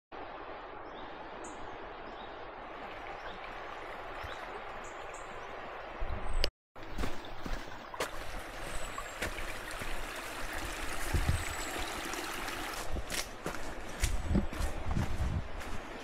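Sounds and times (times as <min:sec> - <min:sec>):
river water rushing: 0:00.2 - 0:06.0, 0:06.9 - 0:14.1
footsteps on dirt path: 0:06.8 - 0:10.1, 0:12.7 - 0:16.0.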